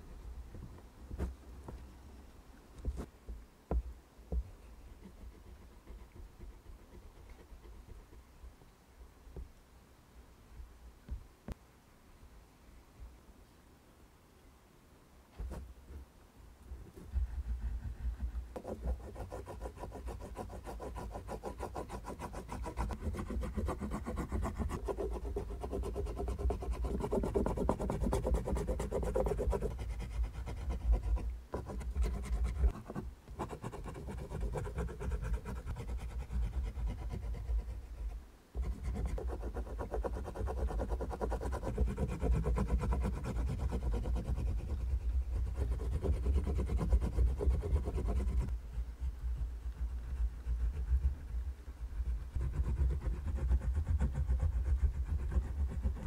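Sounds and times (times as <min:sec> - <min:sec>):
oil pastel scribbling on paper: 0:16.9 - 0:56.0.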